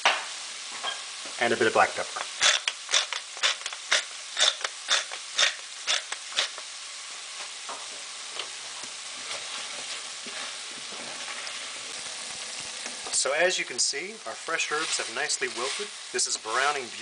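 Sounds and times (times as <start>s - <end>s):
meat sizzling in a pan: 0.0s - 17.0s
pepper mill grinding: 2.2s - 6.6s
wooden spoon stirring: 14.6s - 16.8s.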